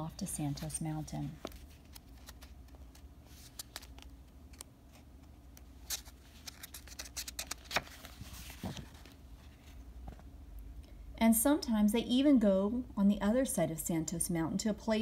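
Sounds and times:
paper page turning: 1.4s - 9.6s
book rustling and tapping: 5.5s - 9.2s.

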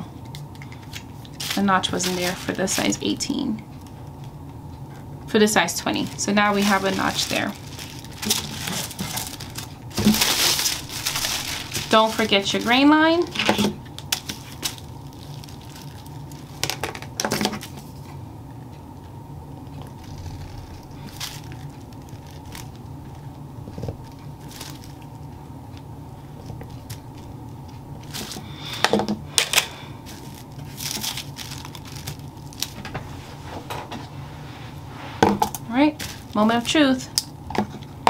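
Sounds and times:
steady low hum: 0.0s - 38.0s
paper rustling: 6.0s - 12.8s, 29.6s - 33.4s.

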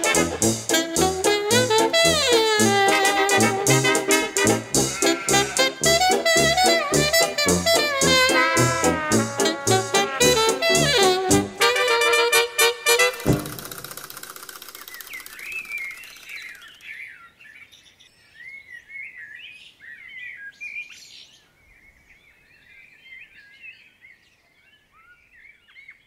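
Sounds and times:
small birds chirping: 14.4s - 26.0s.

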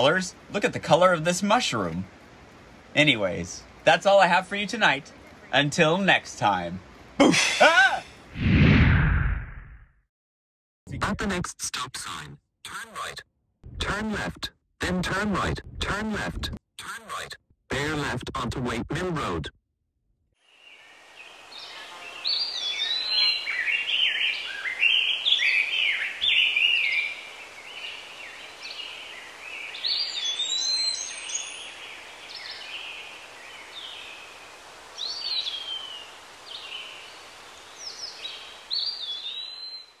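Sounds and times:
songbirds singing and chirping: 0.0s - 7.2s, 20.6s - 40.0s
soft woodland hiss: 0.0s - 8.2s, 20.4s - 39.9s.

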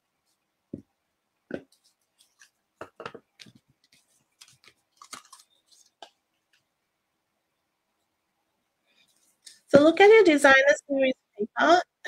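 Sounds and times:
paper rustling: 3.4s - 6.7s.

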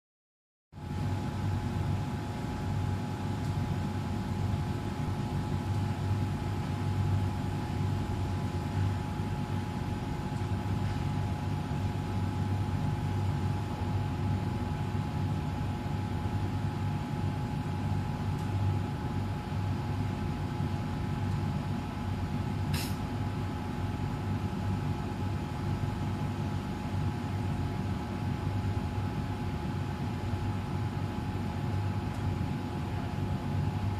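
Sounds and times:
machine humming with high whine: 0.8s - 33.9s
sharp click: 22.7s - 23.0s.

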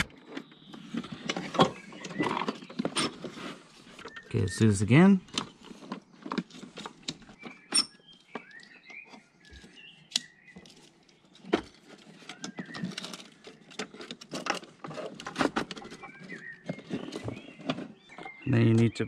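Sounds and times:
faint bird chirps: 7.3s - 11.4s, 15.7s - 19.0s.

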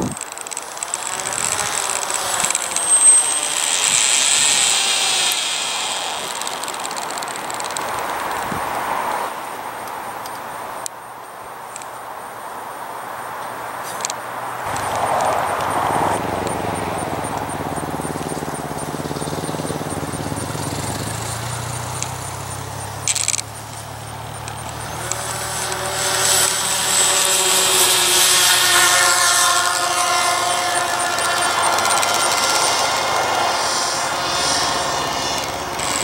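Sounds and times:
model airplane motor: 0.0s - 8.8s, 14.0s - 36.0s.

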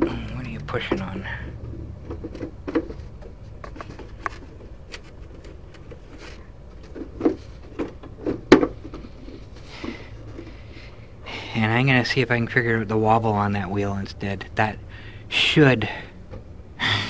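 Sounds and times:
hands clicking and knocking on panel: 0.9s - 4.7s.

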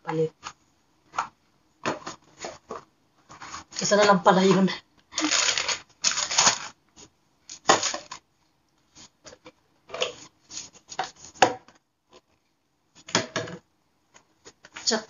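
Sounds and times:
plastic bottles rustling and clattering: 0.4s - 6.8s, 7.5s - 8.2s, 9.2s - 13.6s.

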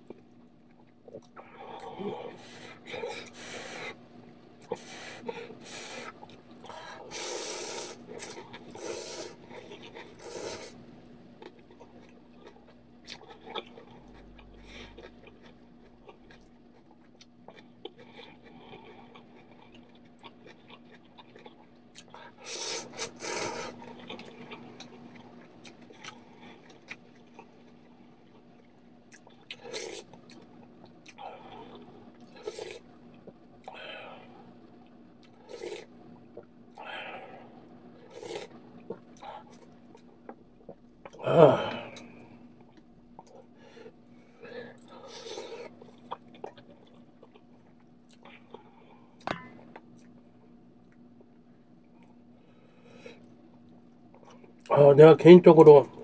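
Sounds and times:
person slurping noodles: 7.1s - 10.8s, 29.5s - 30.1s, 32.4s - 32.8s, 35.5s - 35.9s, 38.1s - 38.5s.

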